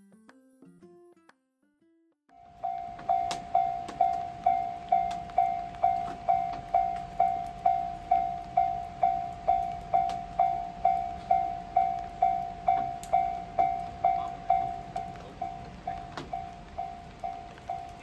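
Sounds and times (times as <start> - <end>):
level crossing bell ringing: 2.4 - 18.0.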